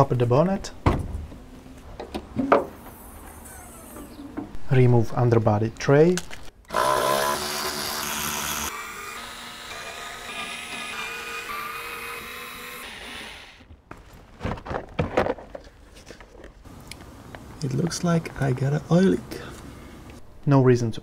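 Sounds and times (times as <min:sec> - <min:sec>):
cordless screwdriver running: 0:06.7 - 0:13.6
plastic knocks and rustles: 0:13.9 - 0:16.6.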